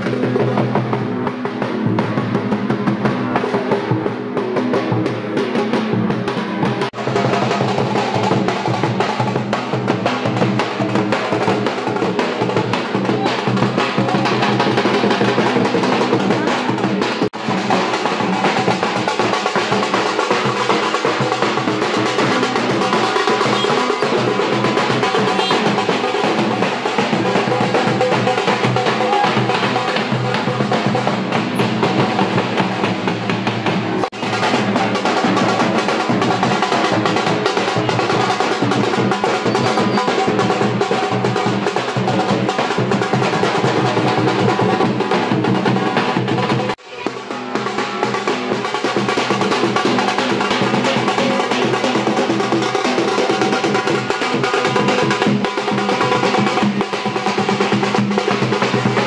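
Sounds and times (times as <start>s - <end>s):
bass drums beating: 0.0s - 59.0s
snare drums: 0.0s - 59.0s.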